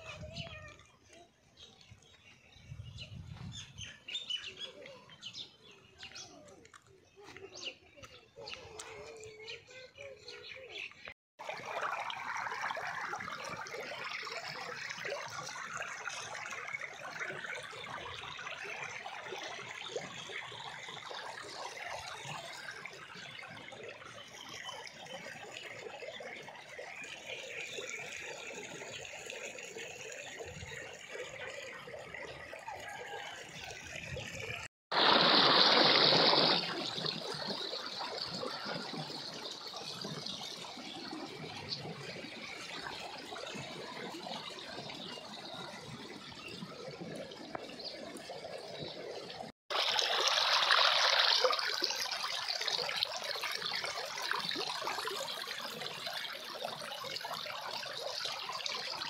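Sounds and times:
stream water rushing: 34.9s - 46.0s, 49.7s - 59.0s.

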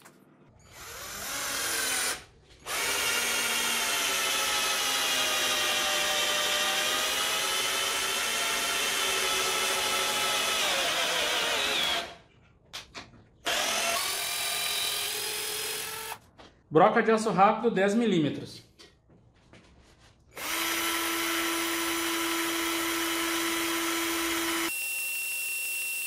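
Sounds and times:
cordless drill motor whining: 0.6s - 12.2s, 13.5s - 16.2s, 20.3s - 26.0s
drill driving screw into wood: 0.6s - 12.2s, 13.4s - 16.2s, 20.4s - 26.0s.

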